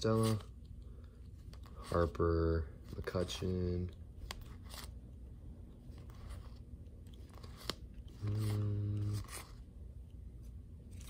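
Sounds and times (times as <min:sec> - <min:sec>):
cards sliding and snapping: 0:04.2 - 0:05.0, 0:05.9 - 0:09.6
man humming mm: 0:08.2 - 0:09.3.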